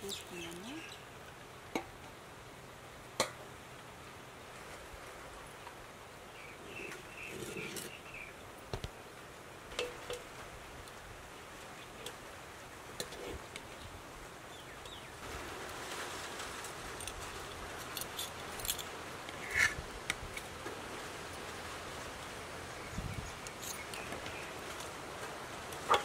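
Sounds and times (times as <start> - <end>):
steady outdoor hiss: 0.0 - 26.0
metal ladle scraping a pot: 7.3 - 7.9.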